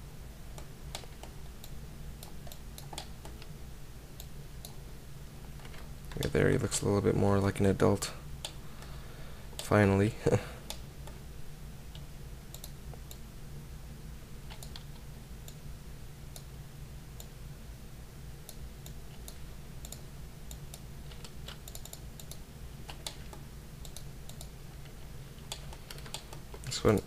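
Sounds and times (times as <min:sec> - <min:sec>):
steady low hum: 0:00.0 - 0:27.0
computer mouse clicks: 0:00.5 - 0:03.5, 0:11.9 - 0:13.2, 0:14.5 - 0:15.6, 0:18.5 - 0:27.0
keyboard clicks: 0:00.6 - 0:03.5, 0:05.6 - 0:06.4, 0:11.9 - 0:13.2, 0:14.5 - 0:15.6, 0:18.5 - 0:27.0.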